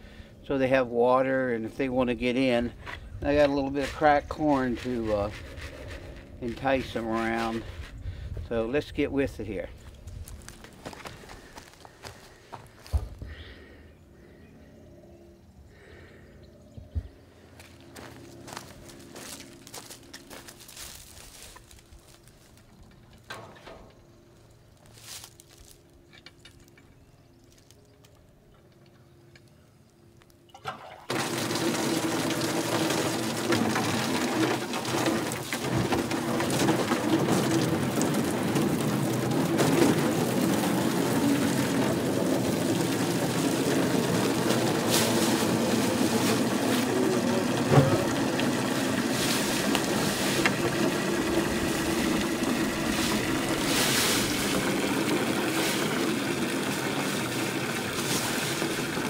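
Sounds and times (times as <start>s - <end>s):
hose spraying water into pool: 30.6s - 59.0s.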